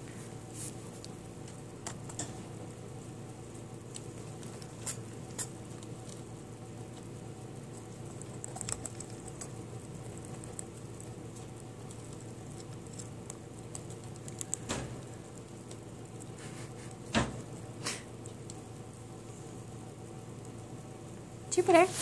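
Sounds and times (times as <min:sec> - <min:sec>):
rat scratching: 0:00.1 - 0:22.0.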